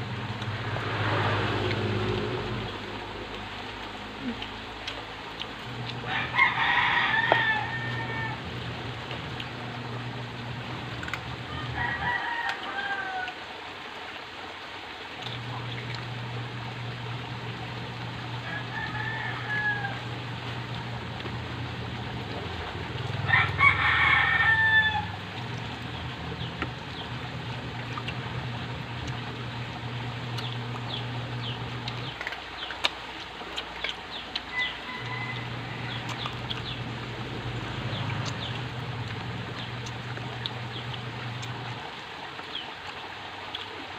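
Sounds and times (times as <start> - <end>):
steady low hum: 0.0 - 12.8, 13.8 - 43.9
rooster crowing: 6.0 - 8.6, 11.4 - 13.5, 18.4 - 20.4, 23.1 - 25.5, 34.5 - 36.8.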